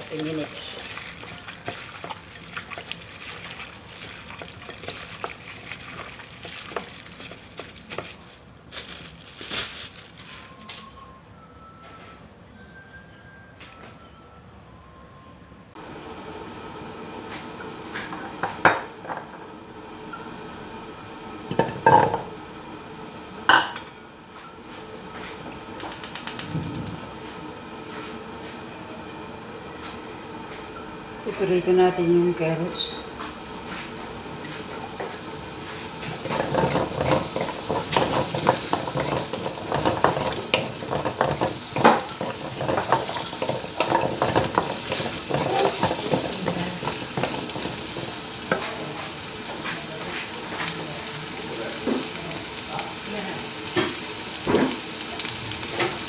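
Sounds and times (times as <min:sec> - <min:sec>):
plastic gloves crinkling: 0:00.0 - 0:11.0
carrot chunks clattering into wok: 0:36.2 - 0:48.6.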